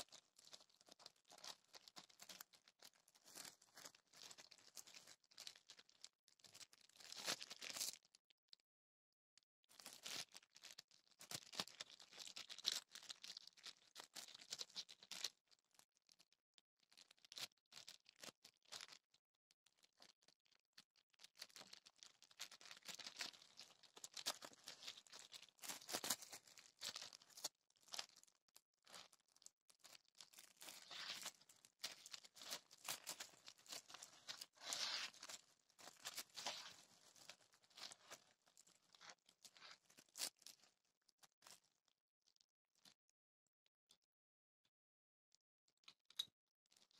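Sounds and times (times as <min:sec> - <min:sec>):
plastic wrapping crinkling: 0:00.0 - 0:08.1, 0:09.8 - 0:15.2, 0:21.3 - 0:40.7.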